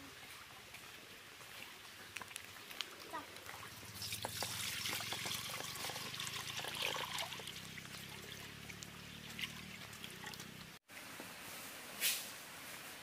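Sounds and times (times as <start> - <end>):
water pouring into a pot: 3.9 - 8.4.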